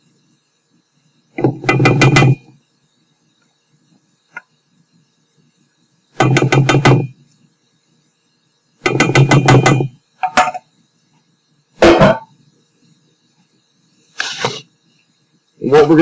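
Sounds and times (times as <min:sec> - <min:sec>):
spatula knocking metal bowl: 0:06.2 - 0:07.1, 0:08.9 - 0:10.6.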